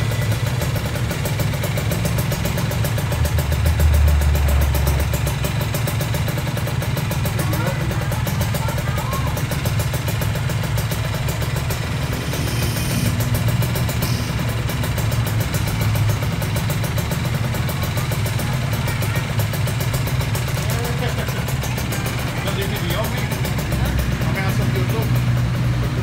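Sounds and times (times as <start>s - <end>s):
motorcycle engine idling: 0.0s - 26.0s.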